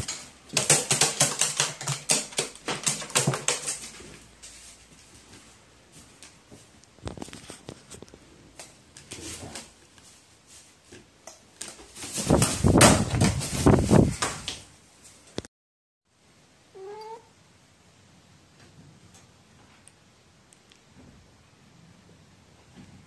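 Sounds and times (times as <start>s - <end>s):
crow flapping wings: 0.0s - 4.1s, 11.8s - 14.6s
taps and rustles: 0.0s - 10.2s, 10.8s - 15.5s.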